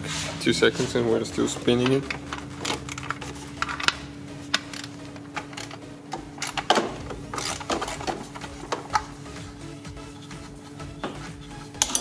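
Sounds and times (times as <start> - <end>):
hand ratchet clicking: 1.8 - 9.1.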